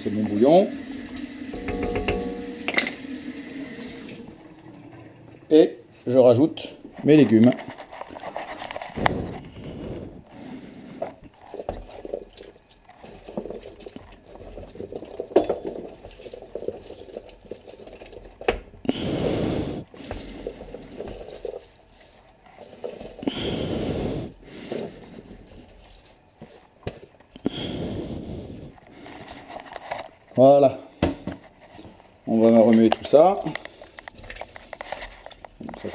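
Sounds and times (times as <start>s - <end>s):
plastic tub knocking: 1.6s - 2.8s.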